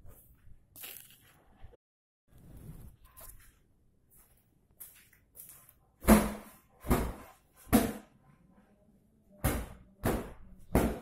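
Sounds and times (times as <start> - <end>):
flip-flop footsteps on tiles: 3.0 - 6.0.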